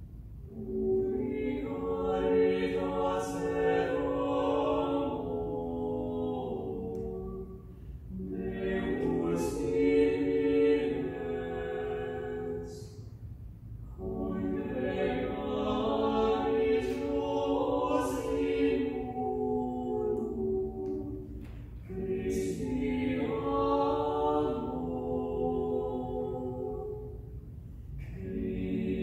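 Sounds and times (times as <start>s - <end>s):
small choir singing unaccompanied: 0.5s - 13.2s, 13.9s - 29.0s.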